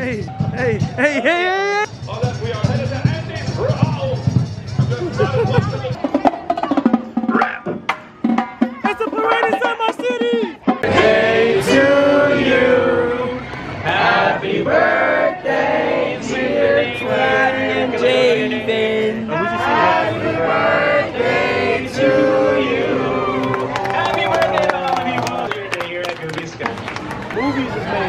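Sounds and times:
music: 0:00.0 - 0:01.1, 0:01.9 - 0:12.5
people singing long notes: 0:10.6 - 0:23.7.

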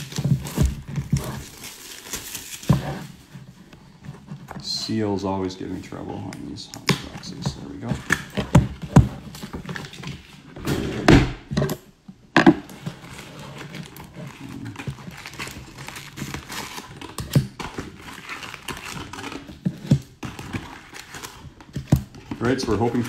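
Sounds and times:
foil wrappers crinkling: 0:00.0 - 0:03.5, 0:12.9 - 0:23.0
box thumps: 0:12.4 - 0:12.8.

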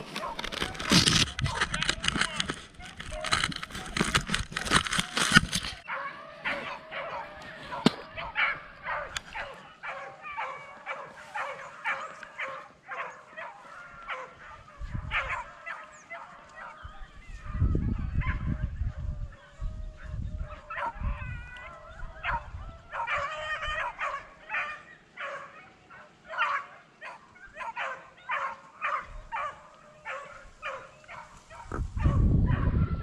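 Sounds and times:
dogs baying and yelping: 0:00.0 - 0:33.0
low rumble on microphone: 0:31.3 - 0:33.0.

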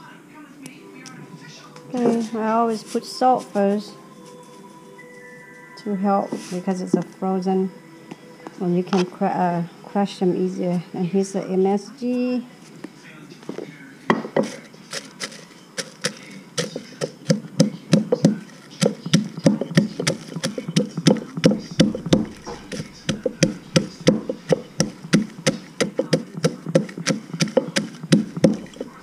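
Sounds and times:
pestle pounding in mortar: 0:14.1 - 0:29.0.

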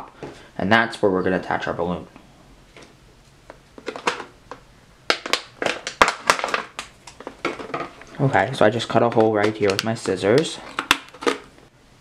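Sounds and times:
plastic bottle crinkling: 0:02.8 - 0:11.6.

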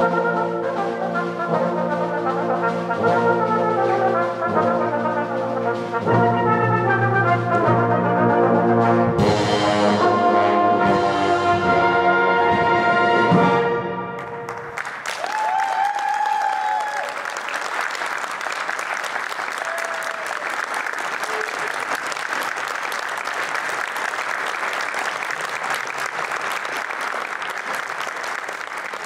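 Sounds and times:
audience applauding: 0:14.2 - 0:29.0.

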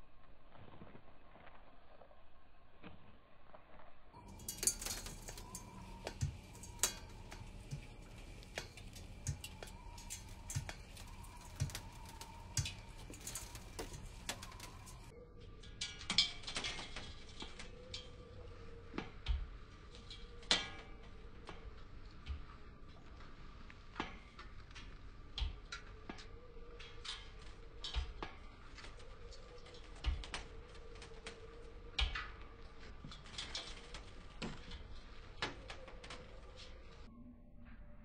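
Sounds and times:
high heels on metal ladder rungs: 0:04.2 - 0:15.1.

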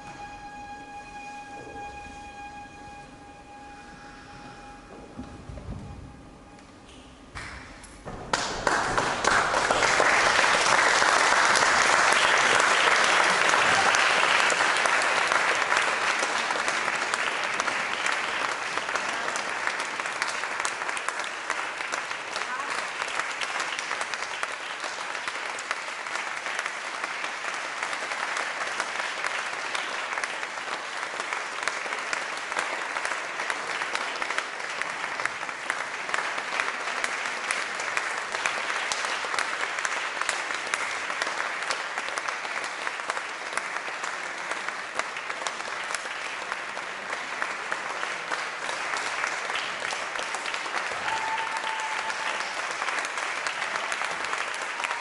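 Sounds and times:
short held tone: 0:00.0 - 0:07.8
audience clapping: 0:06.9 - 0:55.0.

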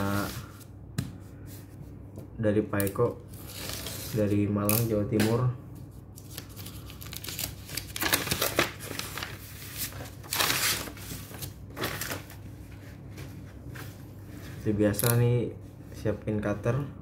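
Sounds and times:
paper rustling and crinkling: 0:06.2 - 0:14.5.

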